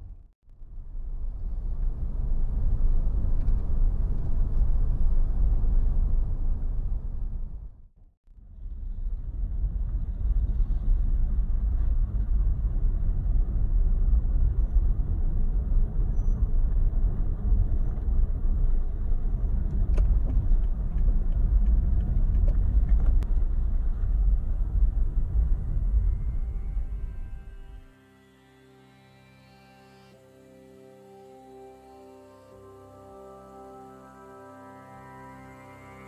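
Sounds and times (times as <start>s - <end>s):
street traffic rumble: 8.6s - 27.8s.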